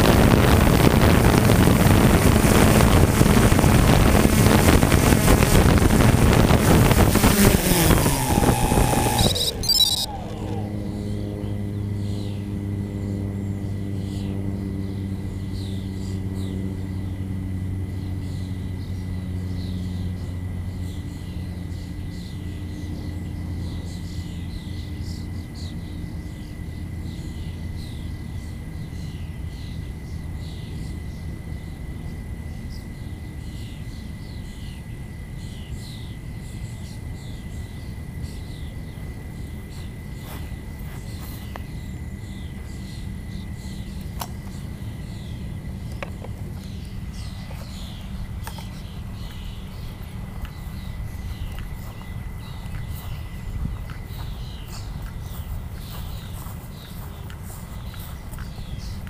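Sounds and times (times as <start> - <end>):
thin high whine: 0.0 - 11.6
low motor drone: 0.0 - 59.0
high chirping: 6.5 - 11.2, 46.6 - 59.0.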